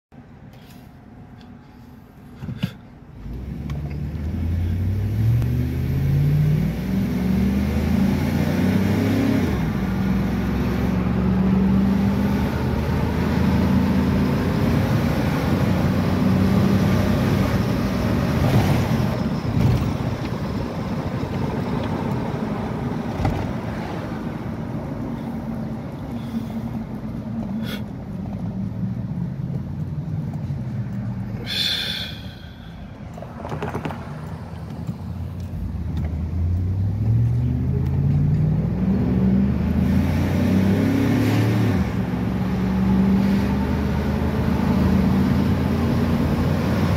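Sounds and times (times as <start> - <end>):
road hum: 0.1 - 46.9
truck engine accelerating: 3.1 - 46.9.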